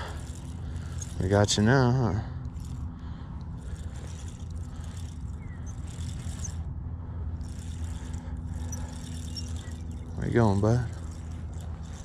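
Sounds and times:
fishing reel whirring: 0.0 - 12.0
steady low hum: 0.0 - 12.0.

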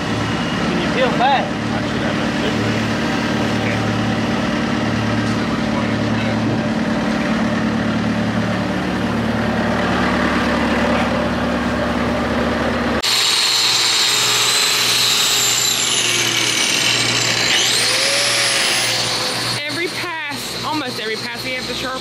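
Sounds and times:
machine engine idling: 0.0 - 13.2
angle grinder whining: 0.0 - 22.0.

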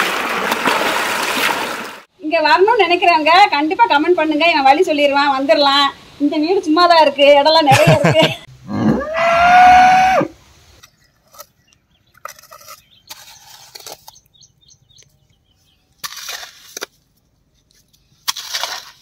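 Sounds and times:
rooster crowing: 8.8 - 10.3
hoe digging into wet soil: 11.2 - 14.3, 16.0 - 19.0.

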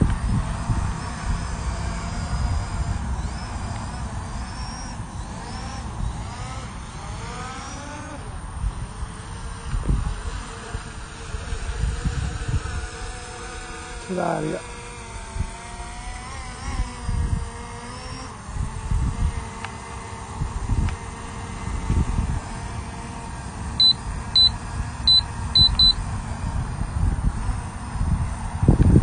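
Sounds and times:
prop wash rumble on microphone: 0.0 - 5.2, 18.4 - 29.0
drone motors and propellers whining: 0.0 - 29.0.

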